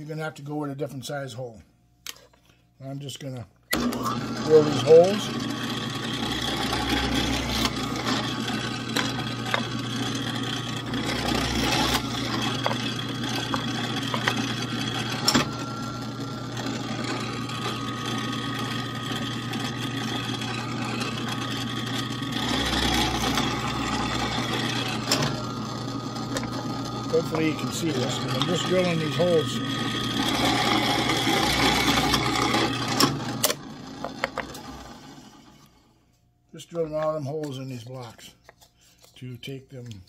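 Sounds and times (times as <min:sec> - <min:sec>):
drill press drilling wood: 0:03.7 - 0:35.4.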